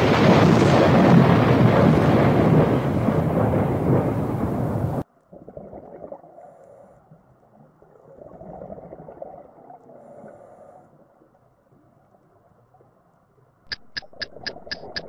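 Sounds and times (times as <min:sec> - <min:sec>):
underwater bubbles burbling: 0:05.3 - 0:06.6, 0:07.5 - 0:10.3.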